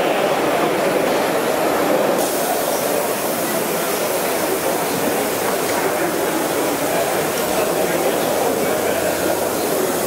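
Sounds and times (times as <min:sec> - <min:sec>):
model train wheels on rails: 0:00.6 - 0:10.0
steam hissing: 0:02.2 - 0:10.0.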